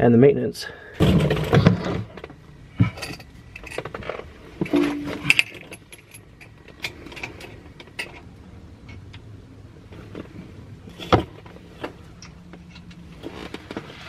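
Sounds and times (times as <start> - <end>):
metal clinks and taps: 4.6 - 8.2.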